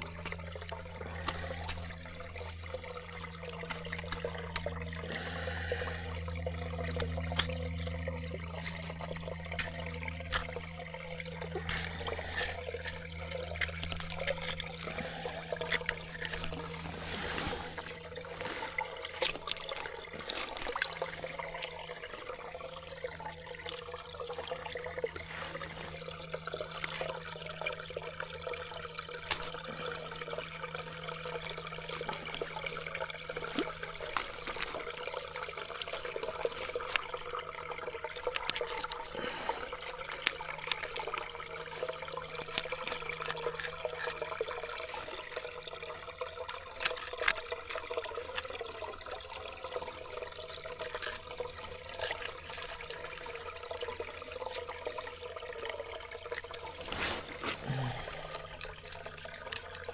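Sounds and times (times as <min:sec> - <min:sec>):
water running and trickling: 0:00.0 - 0:59.9.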